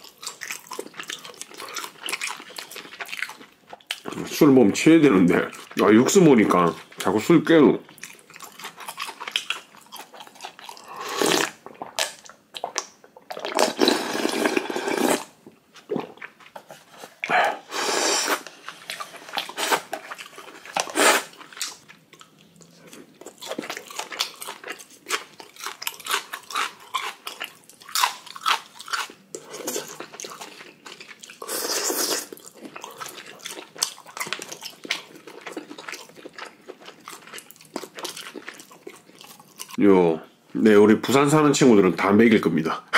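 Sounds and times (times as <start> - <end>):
chewing and crunching: 0.0 - 15.2, 18.5 - 39.8
loud noodle slurps: 10.8 - 11.6, 13.4 - 15.3, 17.5 - 18.5, 20.8 - 21.4, 31.4 - 32.4.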